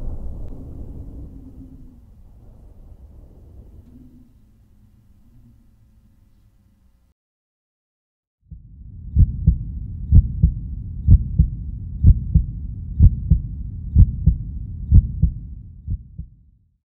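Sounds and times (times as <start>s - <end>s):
low rumble: 0.0s - 7.1s, 8.5s - 16.5s
heartbeat thumps: 8.5s - 16.4s.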